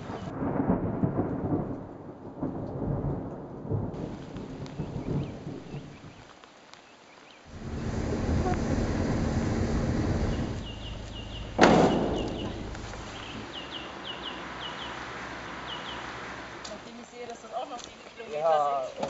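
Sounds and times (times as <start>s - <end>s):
small bird chirping: 6.8s - 15.0s, 15.6s - 16.1s
low rumbling noise: 7.5s - 16.6s
sudden loud knock: 7.6s - 13.5s.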